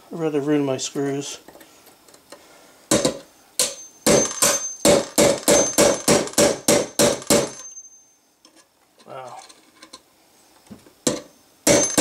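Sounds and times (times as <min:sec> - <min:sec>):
hammer striking metal: 0:02.9 - 0:07.8, 0:11.1 - 0:12.0.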